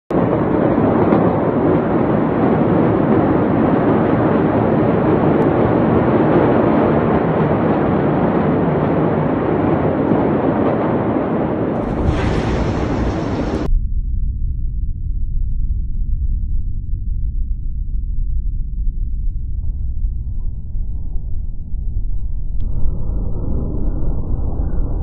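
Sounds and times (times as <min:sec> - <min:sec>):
loud steady noisy roar: 0:00.1 - 0:13.7.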